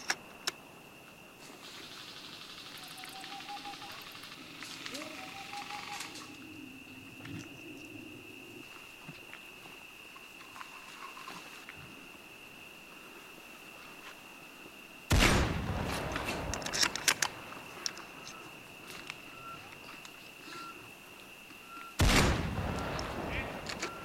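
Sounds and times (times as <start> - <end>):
gunshot echoing: 15.1 - 16.6, 22.0 - 24.0
sharp clicks: 16.1 - 18.4.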